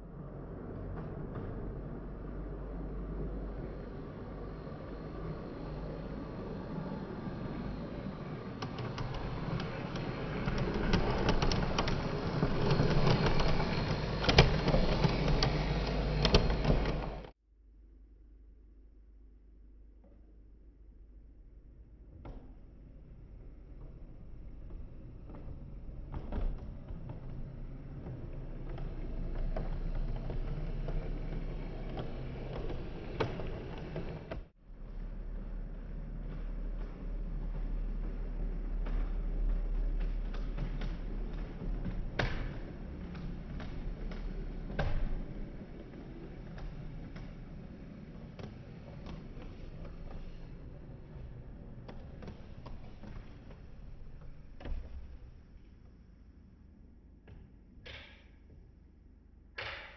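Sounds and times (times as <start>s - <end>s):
wheels clicking over rail joints: 0.1s - 17.3s, 23.1s - 56.0s
model train motor hum: 3.9s - 17.3s, 28.1s - 34.4s.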